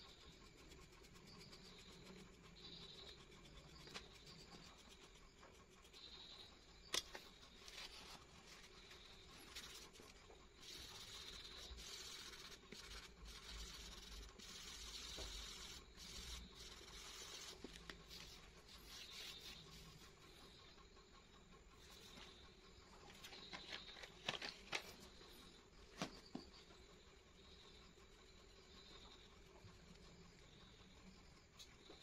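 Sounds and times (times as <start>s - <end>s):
pencil scratching on paper: 0.0s - 20.8s, 21.8s - 25.6s.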